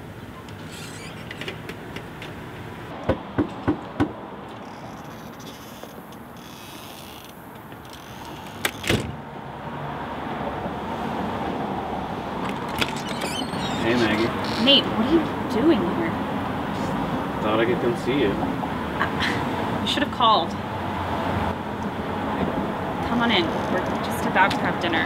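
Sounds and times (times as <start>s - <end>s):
street noise hum: 0.0s - 25.0s
knocks on a door: 3.1s - 4.2s
door latch click and rattle: 7.8s - 9.2s, 12.4s - 13.7s.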